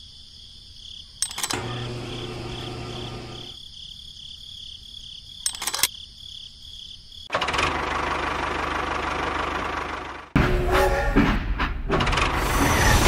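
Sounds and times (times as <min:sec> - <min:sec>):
crickets chirping: 0:00.0 - 0:07.3
rattle of sharp clicks: 0:01.2 - 0:01.8, 0:05.4 - 0:06.0
small motor running: 0:01.4 - 0:03.6.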